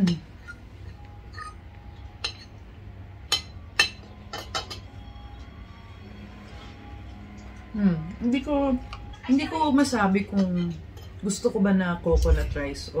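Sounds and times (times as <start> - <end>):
cutlery clinking on a plate: 2.2 - 2.6, 3.3 - 5.0, 10.2 - 11.3.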